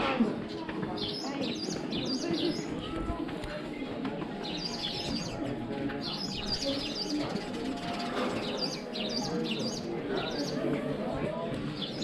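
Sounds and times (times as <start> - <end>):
people's voices: 0.0 - 12.0
small birds chirping: 0.4 - 3.2, 4.4 - 10.7, 11.6 - 12.0.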